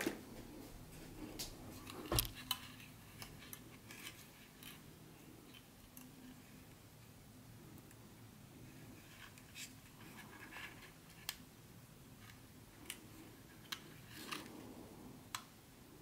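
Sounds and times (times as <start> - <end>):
soft handling rustles: 0.0 - 6.8
low room hum: 0.0 - 16.0.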